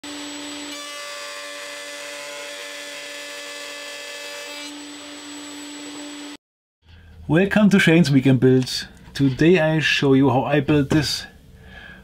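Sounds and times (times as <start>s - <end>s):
router motor whine: 0.0s - 1.1s, 4.7s - 6.4s
router bit cutting wood: 0.0s - 6.4s.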